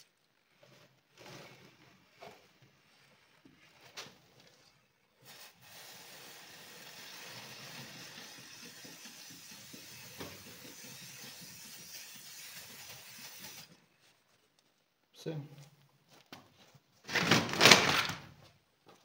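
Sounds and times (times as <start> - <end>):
aerosol spray hissing: 5.2 - 13.7.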